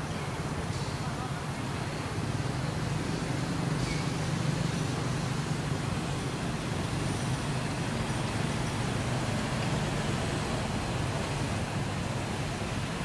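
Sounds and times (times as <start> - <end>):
road traffic rumble and hiss: 0.0 - 13.0.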